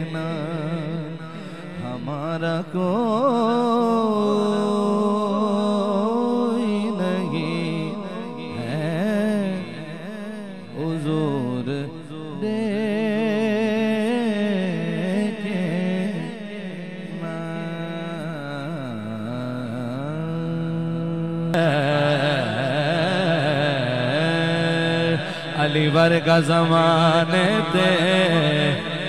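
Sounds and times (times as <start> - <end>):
man singing into a microphone: 0.0 - 29.0.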